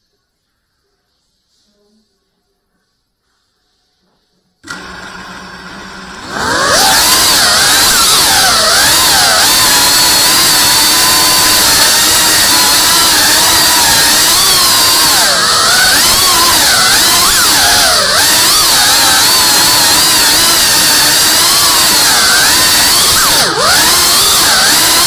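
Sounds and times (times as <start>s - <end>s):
drone motors whining: 5.7s - 25.0s.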